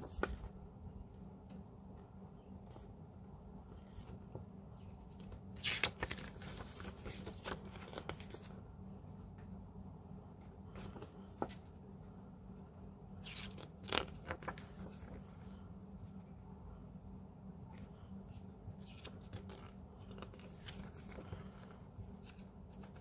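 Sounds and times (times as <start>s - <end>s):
paper pages rustling: 0.0s - 0.6s, 3.8s - 8.7s, 10.4s - 11.8s, 13.2s - 15.6s, 17.7s - 23.0s
steady low hum: 0.0s - 23.0s.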